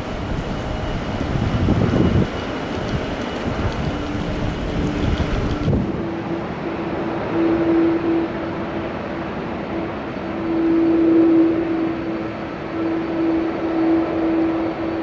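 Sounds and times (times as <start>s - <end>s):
wind buffeting microphone: 0.0s - 11.2s
jet engine rumble: 0.0s - 15.0s
jet engine whine: 0.0s - 15.0s.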